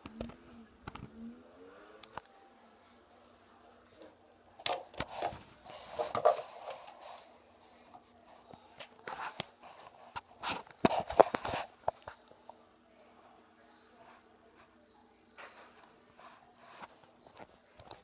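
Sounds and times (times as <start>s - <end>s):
phone being handled: 4.6s - 7.0s, 8.8s - 12.2s.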